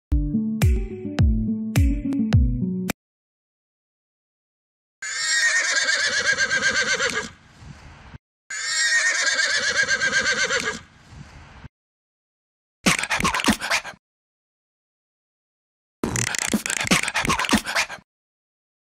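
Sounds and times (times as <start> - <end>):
horse whinnying: 5.0 - 7.4, 8.5 - 10.8.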